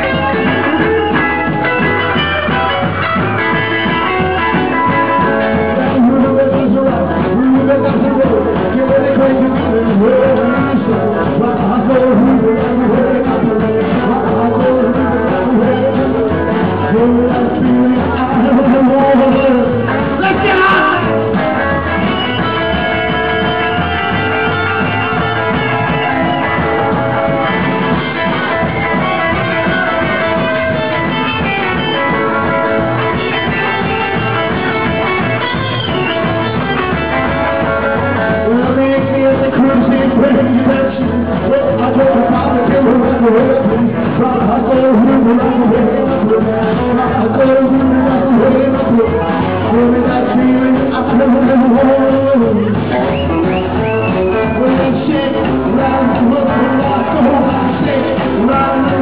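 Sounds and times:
electric guitar: 0:00.0 - 0:59.0
rock and roll band playing: 0:00.0 - 0:59.0
upright bass line: 0:00.0 - 0:59.0.

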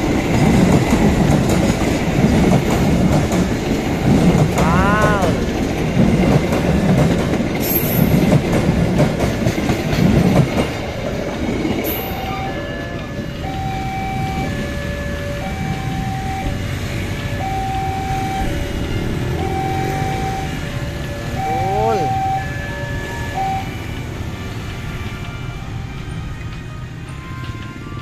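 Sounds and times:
train rumbling and clattering past: 0:00.0 - 0:28.0
level crossing alarm: 0:11.9 - 0:24.4.

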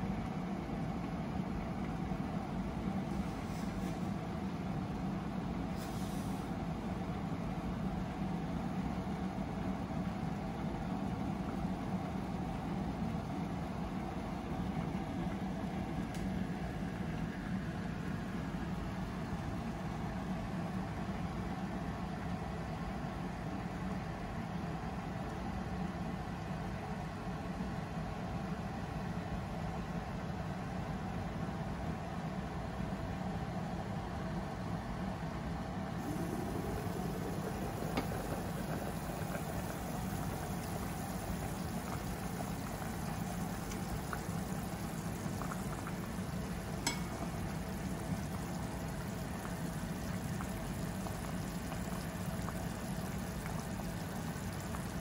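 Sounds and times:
soup boiling and bubbling: 0:00.0 - 0:23.9, 0:36.0 - 0:55.0
low hum: 0:36.0 - 0:54.6.

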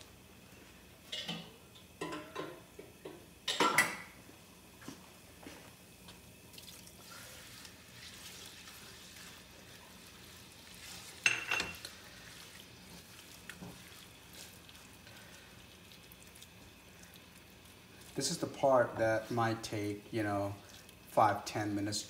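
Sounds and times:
curry sizzling in a pan: 0:05.5 - 0:22.0
water being added: 0:06.4 - 0:21.6.

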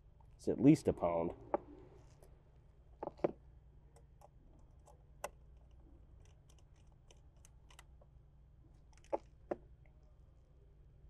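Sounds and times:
faint steady hum: 0:00.0 - 0:11.0
screwdriver clicks and ticks: 0:04.0 - 0:07.9.

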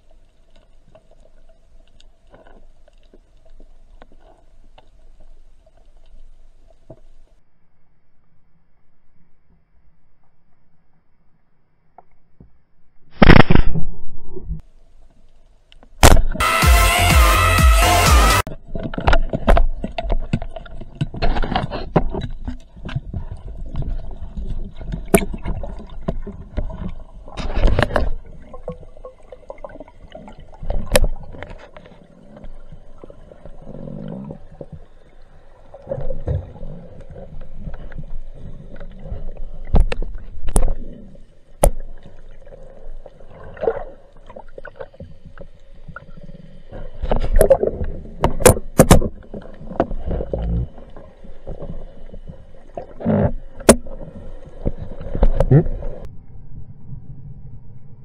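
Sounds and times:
muffled underwater rumble: 0:18.5 - 0:58.0.

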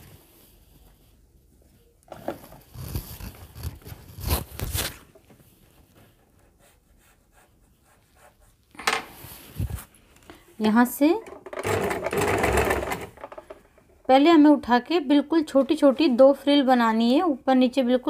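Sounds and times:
scrapes and knocks: 0:11.2 - 0:13.8.

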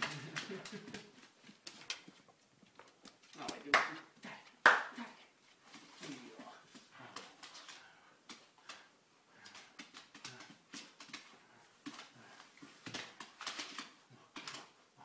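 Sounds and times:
dog claws clicking on wooden floor: 0:00.0 - 0:03.7, 0:07.2 - 0:14.8.

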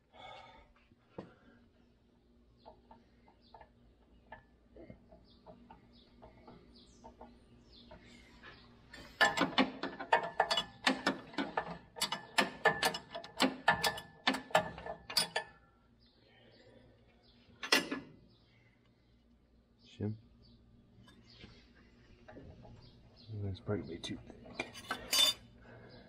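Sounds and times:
metal parts clinking: 0:24.6 - 0:25.5.

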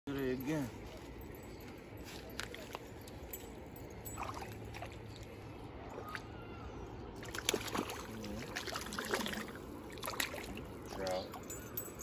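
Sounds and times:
fish splashing in water: 0:05.9 - 0:10.8.

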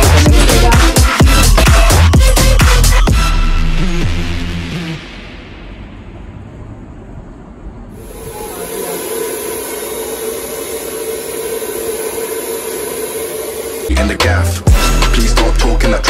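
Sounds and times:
hair dryer running: 0:08.0 - 0:14.0.

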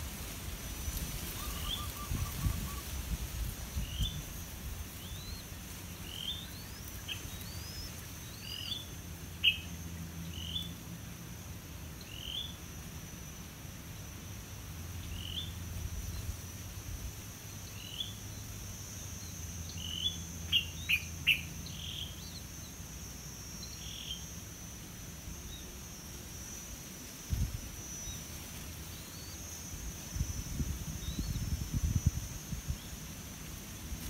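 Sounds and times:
insect high-pitched buzz: 0:00.0 - 0:34.0
songbirds chirping: 0:03.7 - 0:12.7, 0:13.9 - 0:24.6.

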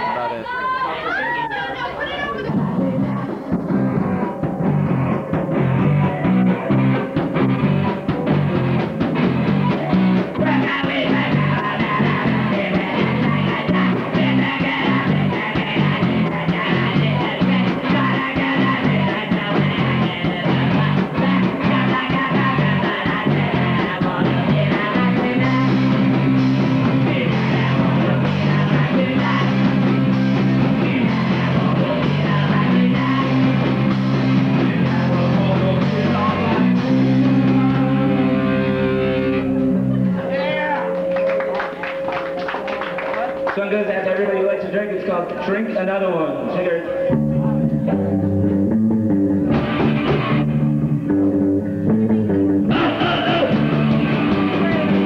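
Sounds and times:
drums: 0:00.0 - 0:55.0
electric guitars: 0:02.2 - 0:43.6, 0:46.8 - 0:55.0
person singing: 0:09.5 - 0:41.0, 0:52.6 - 0:55.0.

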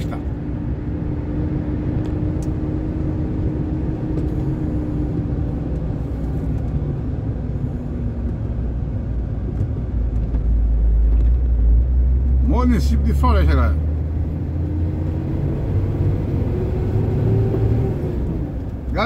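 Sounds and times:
vehicle road noise rumble: 0:00.0 - 0:19.0.

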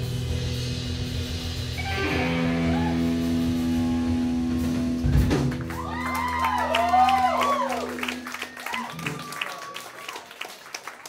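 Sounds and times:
rock band sustained chord: 0:00.0 - 0:08.4
audience whooping and cheering: 0:02.0 - 0:04.4, 0:05.5 - 0:11.0.

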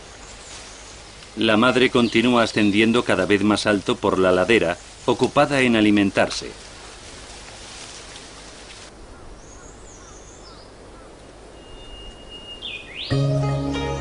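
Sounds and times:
steady hiss: 0:00.0 - 0:09.0
bird chirps and calls: 0:09.2 - 0:13.2
gentle music with sustained notes: 0:13.0 - 0:14.0.

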